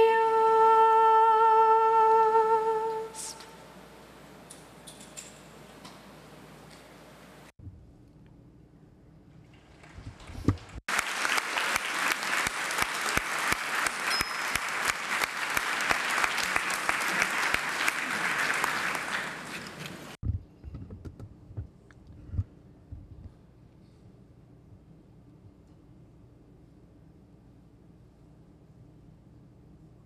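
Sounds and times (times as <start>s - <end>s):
audience applauding: 9.7s - 20.2s.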